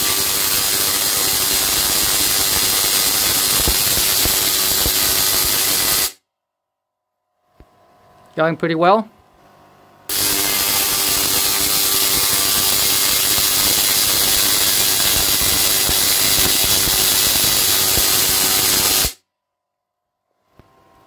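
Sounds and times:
tesla coil arcs crackling buzz: 0.0 - 6.2, 10.1 - 19.2.

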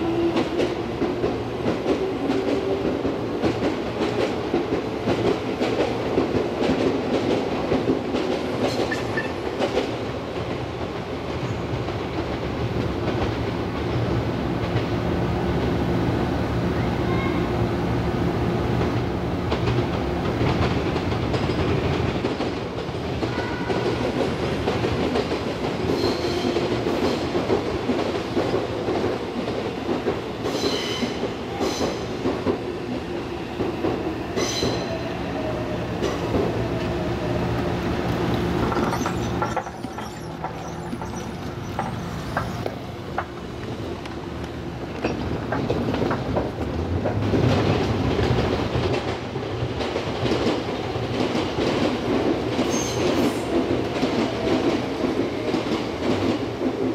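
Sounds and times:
electric train running past: 0.0 - 56.9
high wheel squeals: 38.6 - 42.7.

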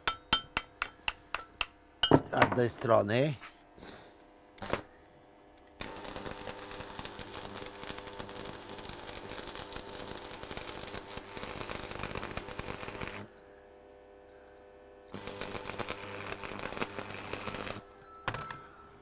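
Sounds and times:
welding arc crackling: 4.6 - 4.9, 5.8 - 13.4, 15.1 - 18.0.

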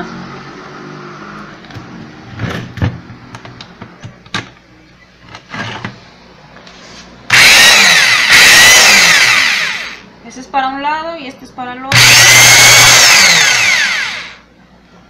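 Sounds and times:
impact wrench motor running: 7.3 - 10.0, 11.9 - 14.4.

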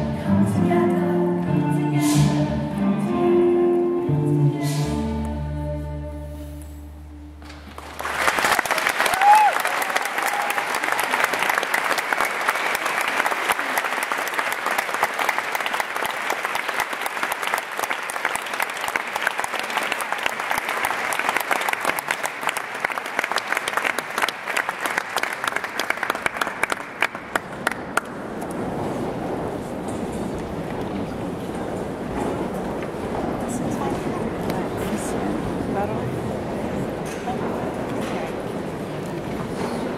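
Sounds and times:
audience applauding: 7.4 - 29.0
crowd murmur: 26.6 - 39.9.

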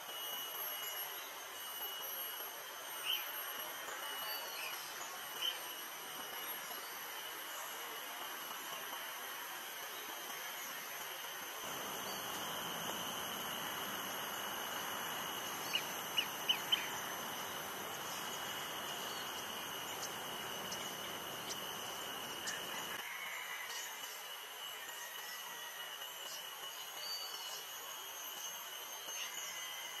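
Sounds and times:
background hiss and high whine: 0.0 - 30.0
bird chirps: 11.7 - 22.9.

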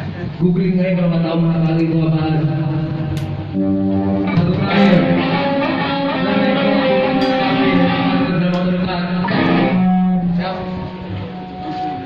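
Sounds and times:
distorted electric guitar: 1.6 - 12.0
live metal band: 3.5 - 12.0.

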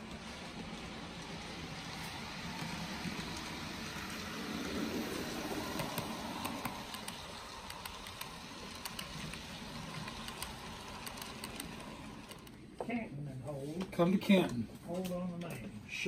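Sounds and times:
model train rumbling: 0.0 - 12.7
light wheel clicks: 5.6 - 12.6.

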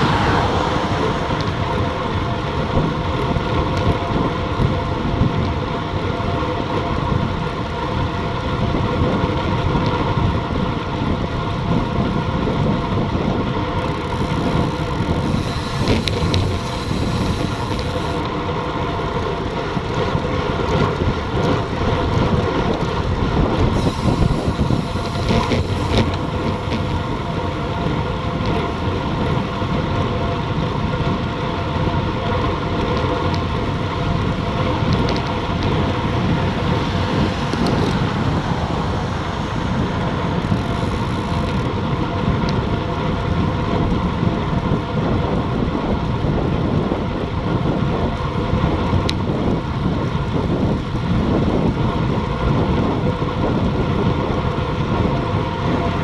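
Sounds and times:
wind rushing: 0.0 - 5.3, 11.1 - 18.2, 22.8 - 29.6, 33.7 - 56.0
road noise from bike: 0.0 - 56.0.

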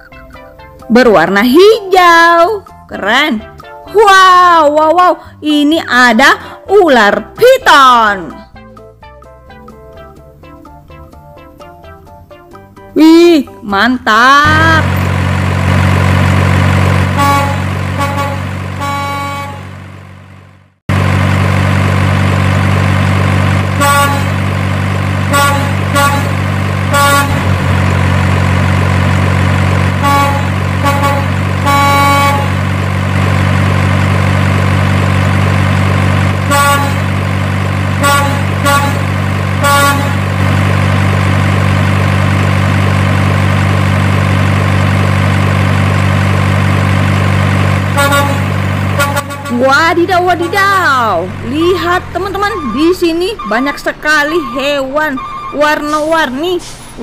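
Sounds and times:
truck horn toots: 14.4 - 20.0, 23.4 - 42.6, 47.4 - 56.4
truck engine drone: 14.4 - 57.0.

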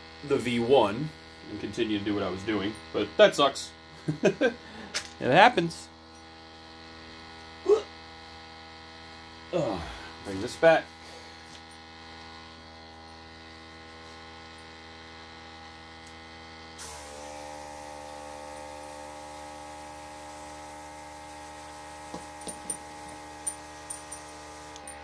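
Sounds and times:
airbrush compressor hum: 6.2 - 25.0.

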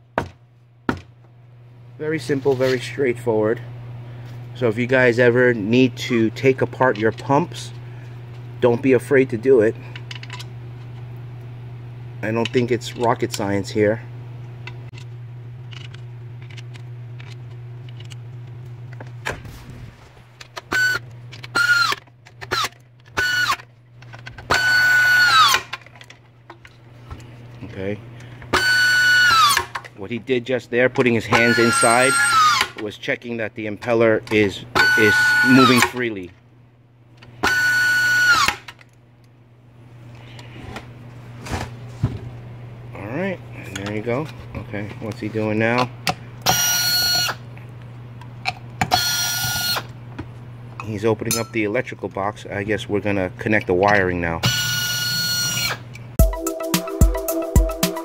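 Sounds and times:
steady low hum: 0.0 - 56.2
power screwdriver whining: 20.6 - 23.6, 24.5 - 25.7, 28.5 - 29.8, 31.4 - 32.8, 34.8 - 36.0, 37.4 - 38.7, 46.4 - 47.4, 48.9 - 49.9, 54.4 - 55.8.

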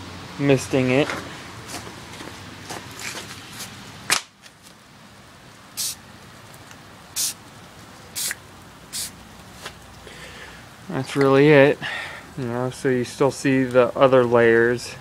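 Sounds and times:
spray can hissing: 5.8 - 6.0, 7.2 - 7.4, 8.2 - 9.2.

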